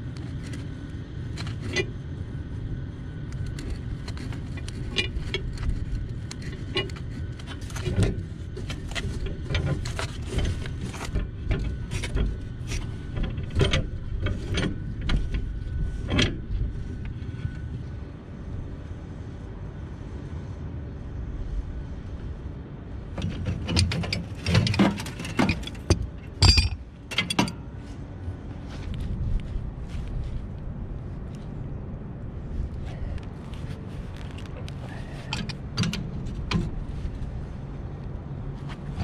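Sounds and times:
metal pipe clicks and scrapes: 0.1s - 2.0s, 3.3s - 17.6s, 23.2s - 27.6s, 33.2s - 37.4s.

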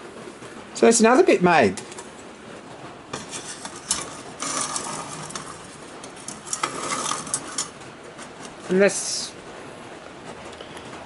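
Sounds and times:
light metal scraping: 3.1s - 8.7s.

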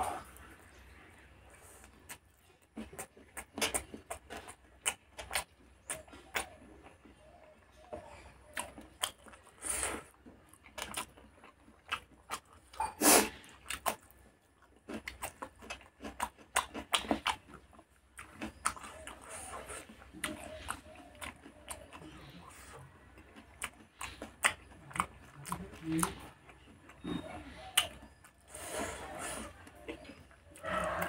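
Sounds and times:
wet chewing: 0.1s - 31.0s
lip smacks and mouth clicks: 1.8s - 9.5s.

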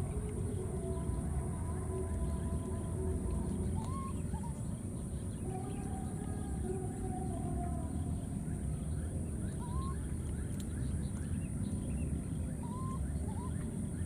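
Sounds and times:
steady low rumble: 0.0s - 14.0s
baby monkey calling: 3.8s - 4.2s, 12.6s - 13.6s.

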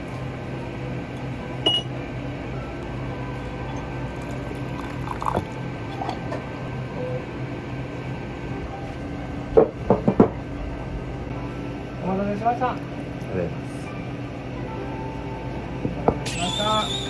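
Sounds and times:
water pouring into teacup: 4.1s - 5.6s.

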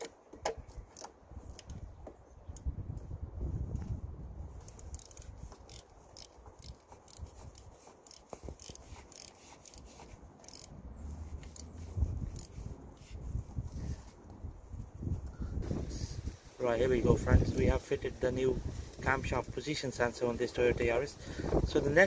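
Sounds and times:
socket ratchet clicking: 4.6s - 10.7s, 11.3s - 12.6s.

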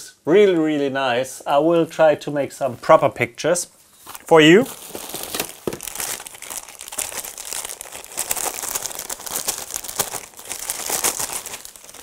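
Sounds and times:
plastic bags crinkling: 4.0s - 12.0s.

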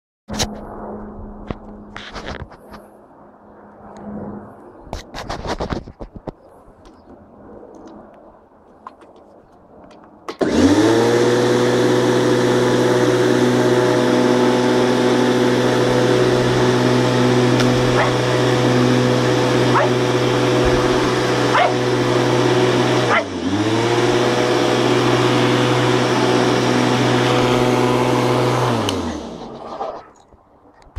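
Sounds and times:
small motor running: 10.4s - 29.9s.

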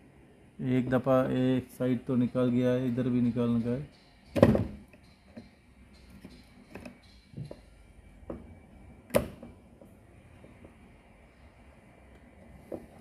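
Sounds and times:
screwdriver tapping and knocking: 4.3s - 7.7s.

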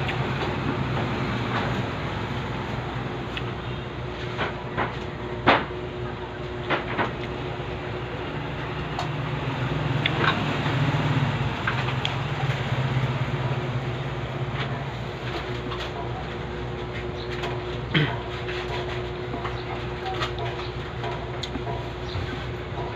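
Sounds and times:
vehicle engine running: 6.3s - 22.9s.

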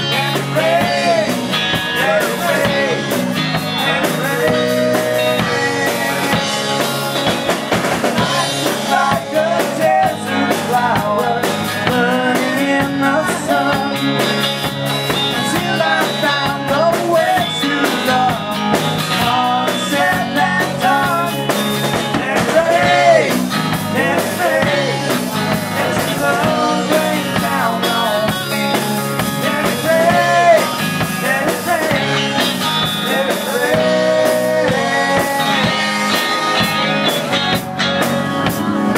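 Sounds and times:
man singing lead: 0.0s - 37.6s
live rock band playing: 0.0s - 38.9s.

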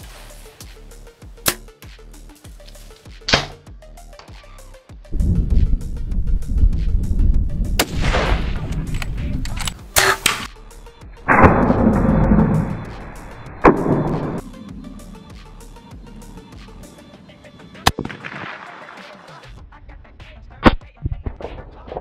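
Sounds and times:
background music with beat: 0.0s - 22.0s
loud gunshots: 17.9s - 19.2s.

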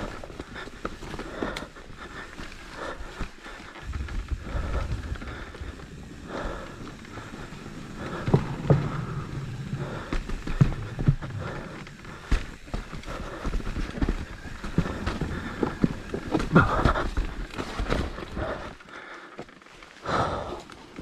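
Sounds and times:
bike wheels rumbling on dirt trail: 0.0s - 21.0s
wheels knocking and rattling: 2.2s - 18.6s.

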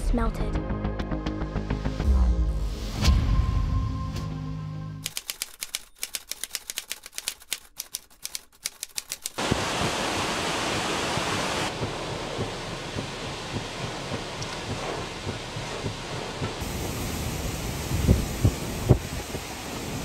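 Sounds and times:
typewriter key clicks: 5.1s - 9.4s
heavy rain: 9.4s - 20.0s
strong wind: 9.4s - 20.0s.

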